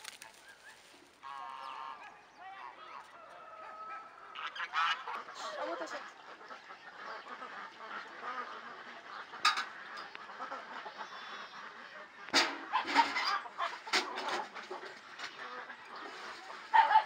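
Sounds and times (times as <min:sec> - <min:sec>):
geese honking: 0:00.0 - 0:17.0
yard ambience: 0:00.0 - 0:17.0.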